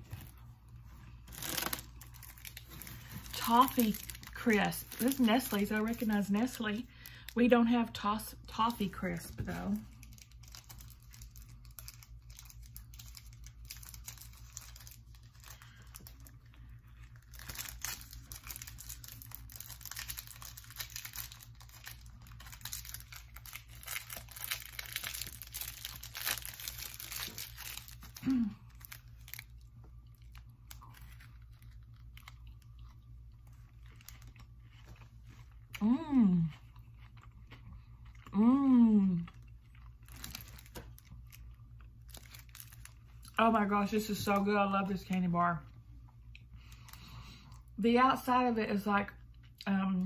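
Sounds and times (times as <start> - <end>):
plastic wrapper crinkling: 0.0 - 35.6, 39.7 - 45.2.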